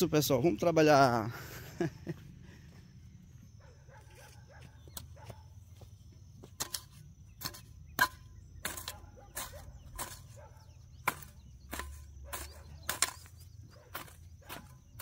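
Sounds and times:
hand tool chopping ground: 6.4 - 15.0.

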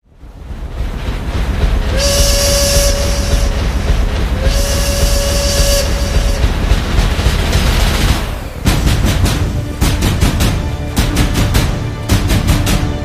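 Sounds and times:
train rumbling: 0.0 - 13.0
train horn blasts: 1.9 - 7.1.

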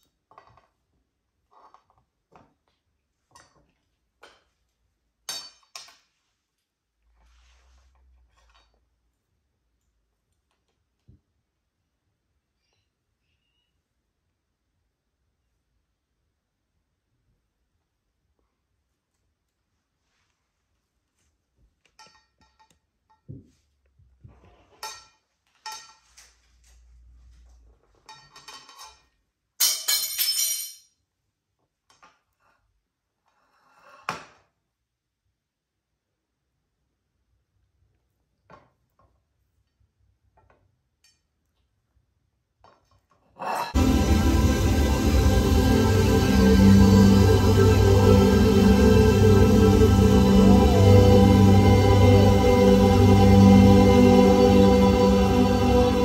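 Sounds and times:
cutlery clinking on ceramic plate: 5.3 - 6.0, 28.0 - 30.8.

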